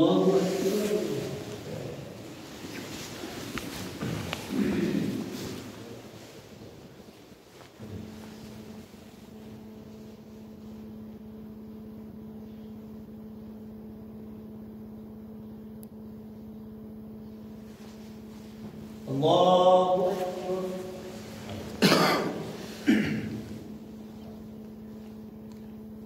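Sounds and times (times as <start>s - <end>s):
man's loud voice: 0.0s - 2.2s, 4.5s - 5.8s, 19.1s - 23.4s
steady low hum: 0.0s - 26.0s.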